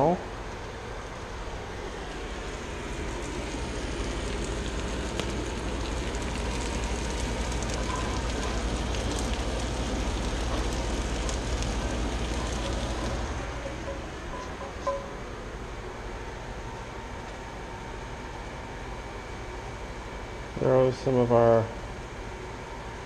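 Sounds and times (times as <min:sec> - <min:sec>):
sauce sizzling and bubbling: 0:00.3 - 0:15.2
faint crackles: 0:00.5 - 0:15.0.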